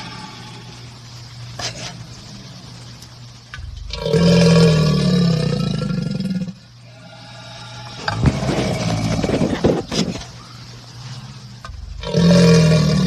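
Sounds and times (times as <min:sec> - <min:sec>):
alligator bellowing: 0:03.6 - 0:10.2, 0:11.7 - 0:13.0.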